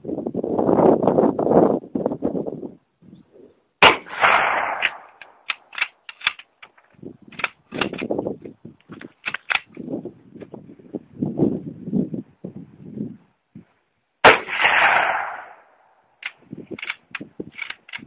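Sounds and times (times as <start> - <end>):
wind noise on microphone: 0.0 - 18.0
rifle shot: 3.8 - 6.4, 14.2 - 15.9
rifle bolt clicking: 4.7 - 8.1, 9.2 - 9.7, 16.2 - 18.0.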